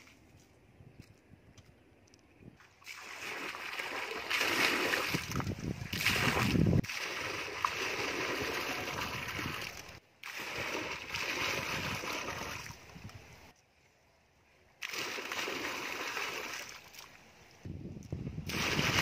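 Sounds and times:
water falling into pool: 0:02.8 - 0:12.7, 0:14.8 - 0:17.2.

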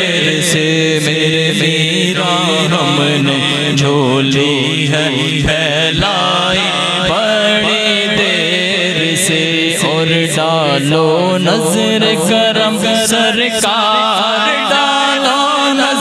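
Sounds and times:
person singing ornamented notes: 0:09.8 - 0:16.0.

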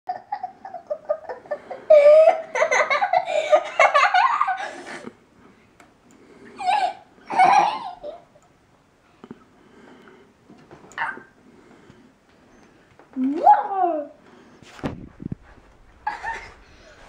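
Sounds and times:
girl giggling and laughing: 0:00.1 - 0:05.1, 0:06.6 - 0:08.4, 0:16.0 - 0:17.0.

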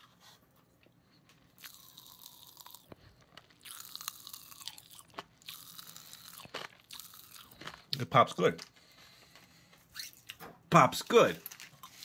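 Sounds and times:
popping candy crackling in mouth: 0:01.5 - 0:09.0.

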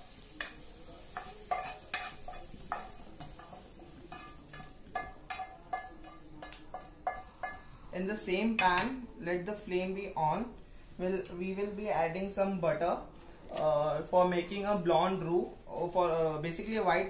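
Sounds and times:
spatula scraping frying pan: 0:00.4 - 0:07.6.

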